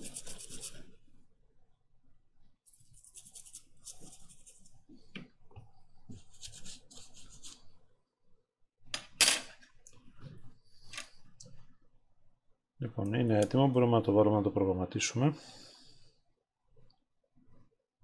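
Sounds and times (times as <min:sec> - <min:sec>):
toothbrush scrubbing chip: 0:00.0 - 0:00.8, 0:02.7 - 0:04.7.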